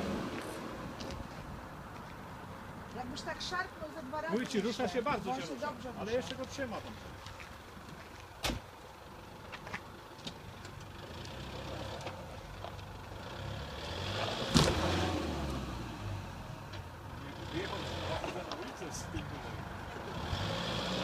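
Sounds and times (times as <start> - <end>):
engine revving under load: 13.2 - 16.6, 17.2 - 18.6, 19.4 - 21.0.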